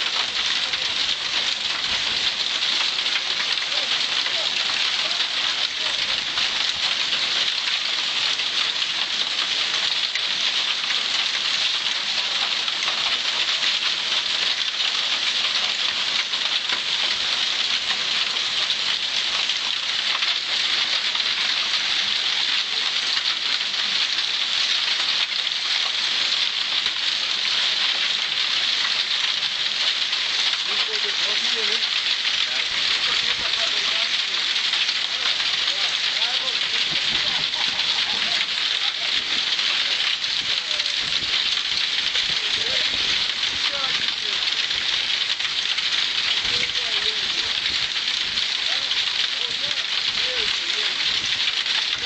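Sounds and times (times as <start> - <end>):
heavy rain pouring: 0.0 - 52.0.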